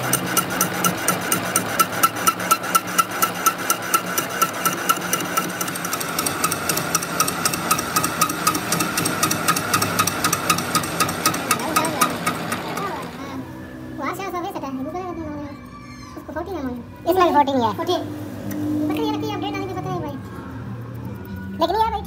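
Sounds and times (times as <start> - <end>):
rhythmic metallic ticking: 0.0 - 13.2
lathe humming: 0.0 - 13.5.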